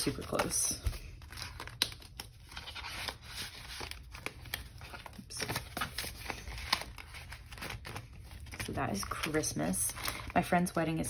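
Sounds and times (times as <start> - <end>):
paper banknotes rustling: 0.0 - 11.0.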